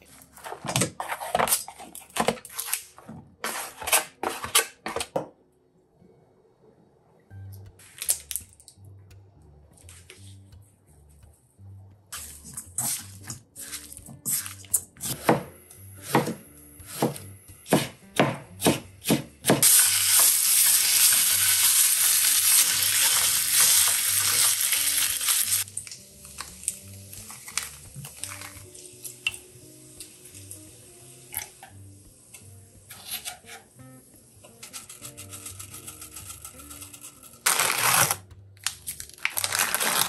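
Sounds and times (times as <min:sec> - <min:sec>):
meat sizzling in a pan: 0:19.6 - 0:25.8.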